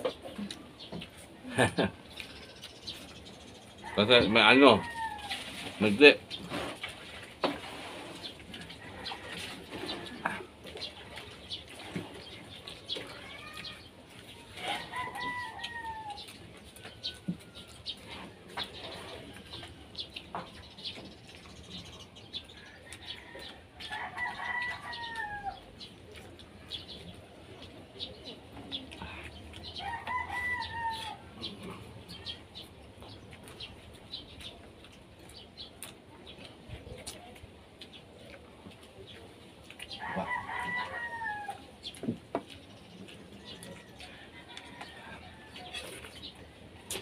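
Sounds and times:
people eating with hands: 0:00.0 - 0:47.0
rooster crowing: 0:14.6 - 0:16.2, 0:23.4 - 0:25.6, 0:29.8 - 0:31.2, 0:40.0 - 0:41.6.

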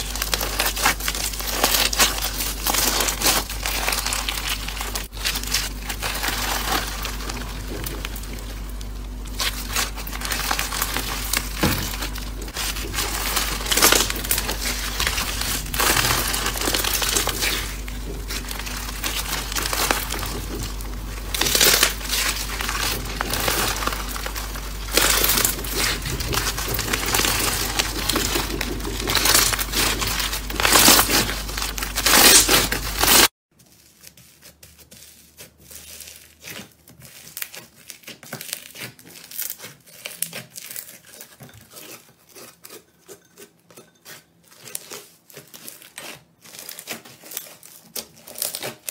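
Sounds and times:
low steady hum: 0:00.0 - 0:33.3
foam-bead slime crackling: 0:00.0 - 0:42.7, 0:44.5 - 0:48.9.

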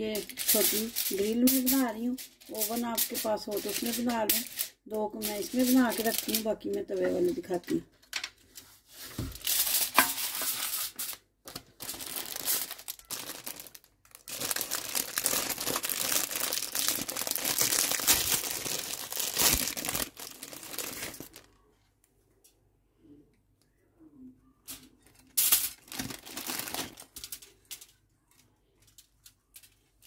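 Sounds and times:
foil and plastic crinkling: 0:00.0 - 0:07.8, 0:08.9 - 0:21.6, 0:25.4 - 0:27.9.

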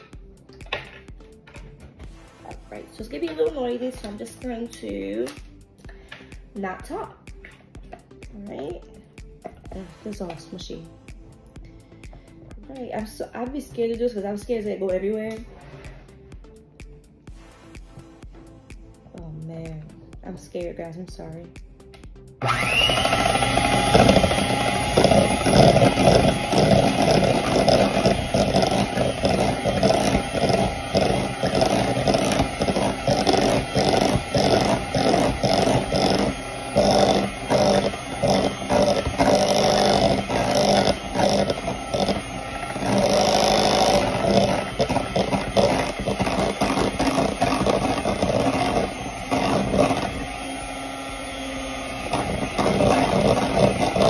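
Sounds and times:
beaters scraping bowl: 0:22.4 - 0:54.0
electric hand mixer motor: 0:22.4 - 0:54.0.

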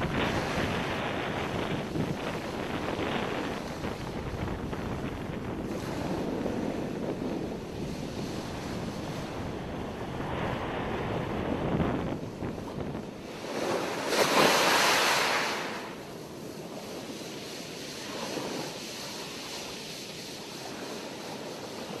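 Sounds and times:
wind blowing over microphone: 0:00.0 - 0:22.0
surf breaking: 0:08.0 - 0:16.1.

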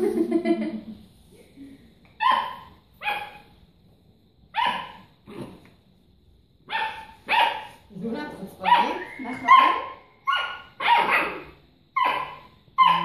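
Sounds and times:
puppy barking: 0:02.2 - 0:03.4, 0:04.6 - 0:05.0, 0:06.7 - 0:07.8, 0:08.6 - 0:13.0.

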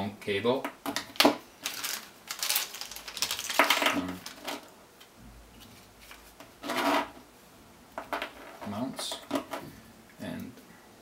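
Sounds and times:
plastic bag crinkling: 0:01.2 - 0:04.7.

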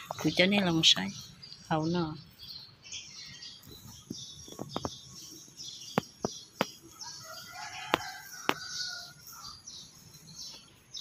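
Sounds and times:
small birds chirping: 0:00.0 - 0:11.0
rooster crowing: 0:07.0 - 0:09.7.

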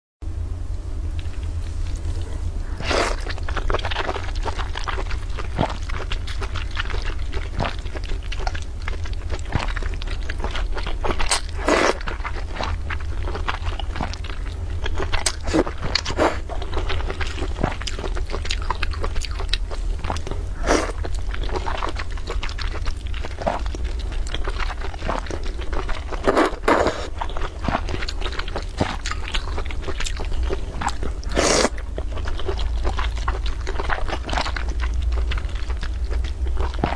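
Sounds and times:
steady low hum: 0:00.2 - 0:36.9
wet chewing: 0:01.1 - 0:36.9
loud noodle slurp: 0:11.6 - 0:12.0, 0:20.6 - 0:21.0, 0:26.2 - 0:27.1, 0:31.3 - 0:31.8.

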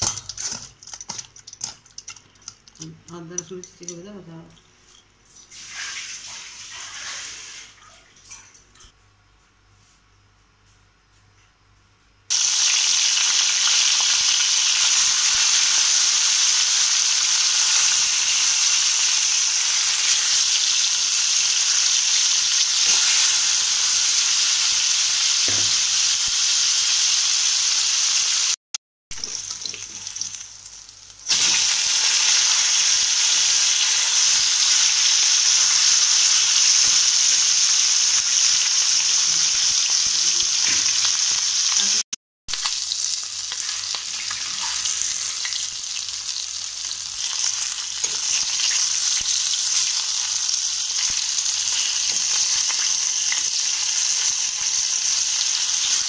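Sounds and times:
fish sizzling in hot oil: 0:12.3 - 0:28.6, 0:29.2 - 0:56.0.

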